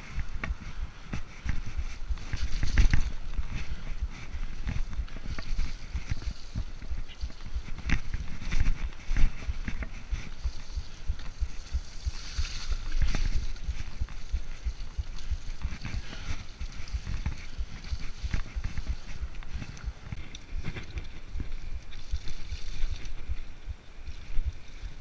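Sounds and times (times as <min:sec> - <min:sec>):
bike rattling over bumps: 0:00.0 - 0:25.0.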